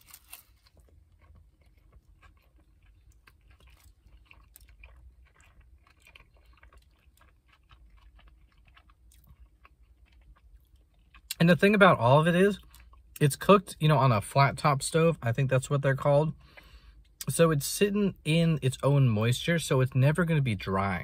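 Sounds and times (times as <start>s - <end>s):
person chewing food: 0.0s - 11.4s, 12.5s - 13.2s, 15.9s - 17.3s
low steady hum: 0.0s - 21.0s.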